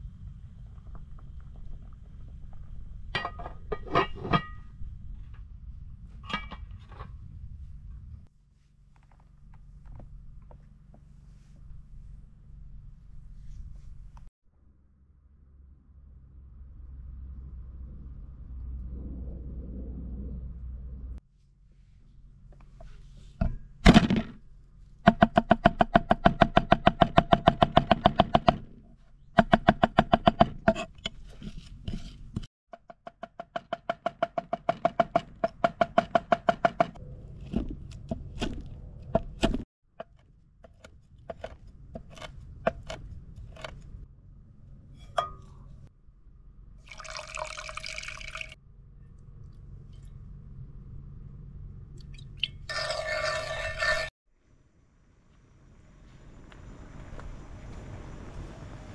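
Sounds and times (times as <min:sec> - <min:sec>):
pouring liquid: 0:46.8 - 0:48.6.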